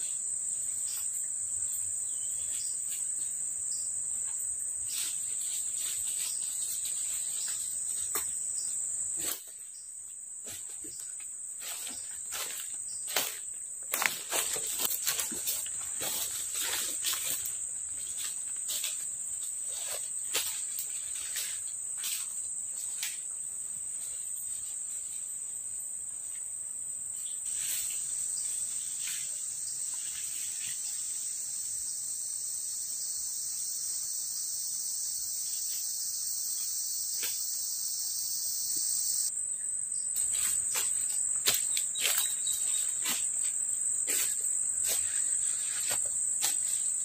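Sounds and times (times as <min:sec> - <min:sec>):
lower insect drone: 0:00.0 - 0:47.0
footsteps on dry leaves: 0:10.5 - 0:22.4, 0:40.2 - 0:47.0
high-pitched insect drone: 0:27.2 - 0:47.0.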